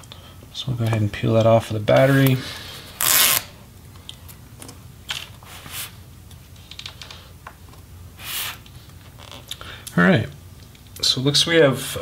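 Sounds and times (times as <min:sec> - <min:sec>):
adhesive tape peeling: 0:03.0 - 0:03.5.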